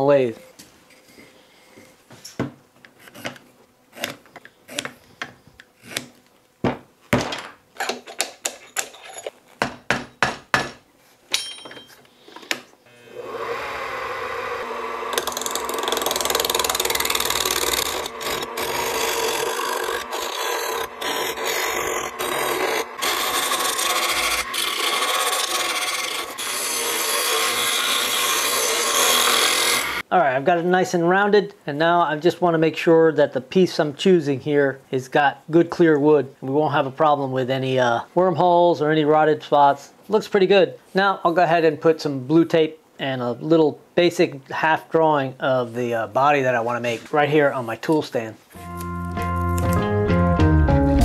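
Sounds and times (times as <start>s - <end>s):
gouge scraping spinning wood: 3.0s - 4.9s, 13.1s - 30.0s.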